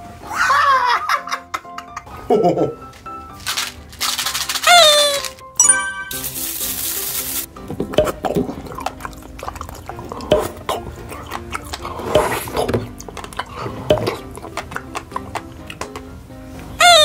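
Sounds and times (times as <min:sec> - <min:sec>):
background music: 0:00.0 - 0:17.0
wet sucking and slurping: 0:07.2 - 0:16.0
sharp mouth pops and smacks: 0:07.8 - 0:10.7, 0:11.3 - 0:16.1.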